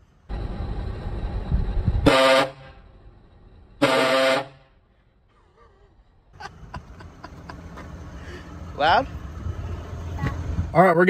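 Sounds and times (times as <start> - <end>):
air horn blasts: 2.0 - 2.9, 3.8 - 4.8.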